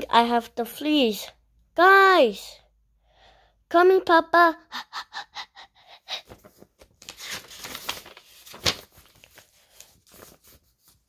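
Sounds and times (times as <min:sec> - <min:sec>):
paper rustling: 0:06.1 - 0:11.0
paper crackle: 0:06.2 - 0:11.0.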